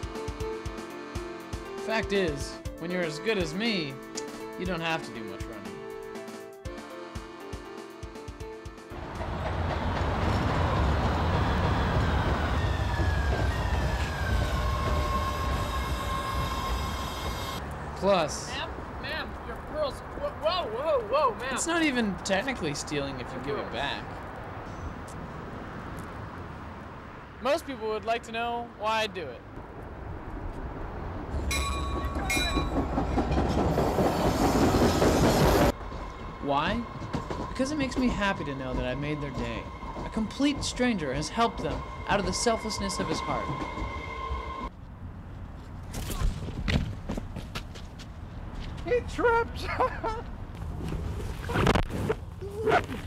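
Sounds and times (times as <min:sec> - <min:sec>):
passing vehicle rumble: 0:08.9 - 0:28.8, 0:29.4 - 0:45.9
high steady squealing tones: 0:10.6 - 0:17.6, 0:31.4 - 0:44.7
vehicle low rumble: 0:29.4 - 0:33.9.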